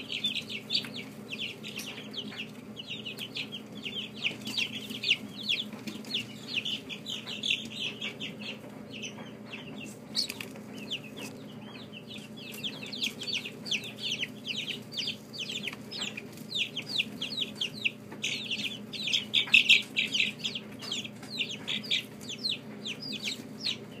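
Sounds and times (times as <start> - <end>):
chicks peeping: 0.0 - 24.0
low steady hum: 0.0 - 24.0.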